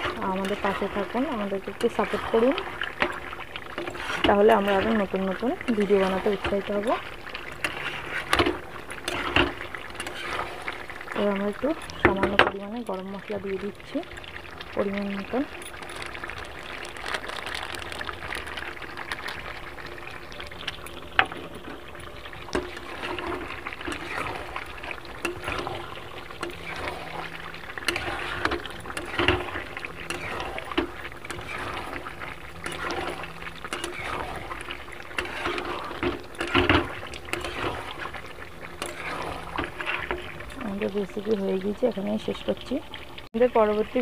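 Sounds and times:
ladle scraping and knocking pan: 0:00.0 - 0:12.7, 0:21.1 - 0:40.9
thick curry bubbling: 0:00.0 - 0:44.0.

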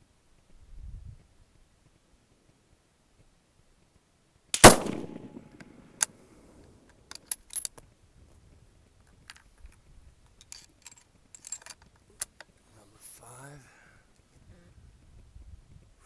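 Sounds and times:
rifle bolt clicking: 0:04.6 - 0:05.7
rifle shot: 0:04.6 - 0:06.0.

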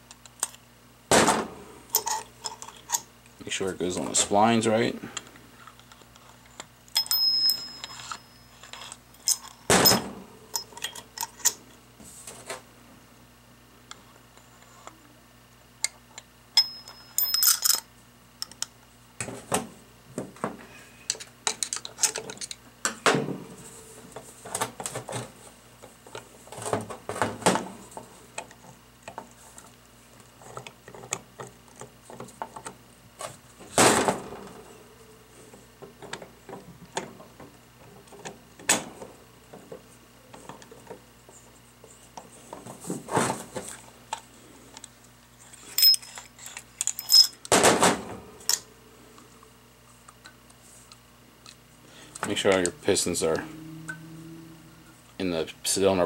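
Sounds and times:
metal parts clicking and knocking: 0:45.7 - 0:47.4.

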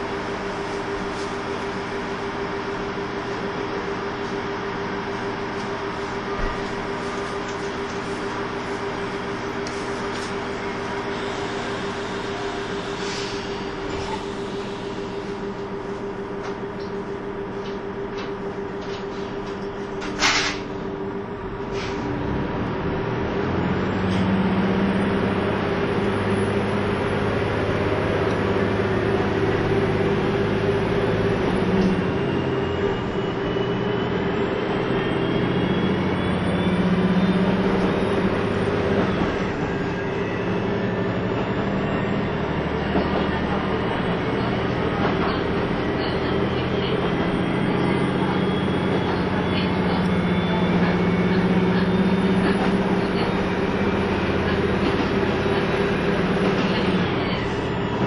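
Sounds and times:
diesel railcar engine: 0:00.0 - 0:58.0
gliding engine whines: 0:20.9 - 0:58.0.

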